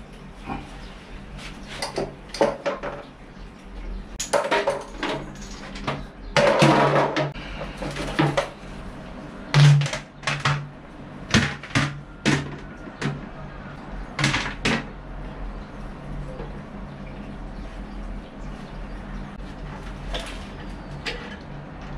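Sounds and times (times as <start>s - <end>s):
steady low hum: 0.0s - 21.9s
plastic toilet seat clattering: 5.9s - 8.5s.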